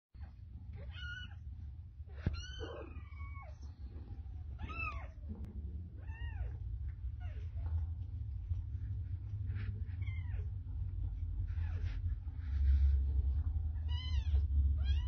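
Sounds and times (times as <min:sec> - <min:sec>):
steady low rumble: 0:00.2 - 0:15.0
kittens mewing: 0:02.1 - 0:07.8.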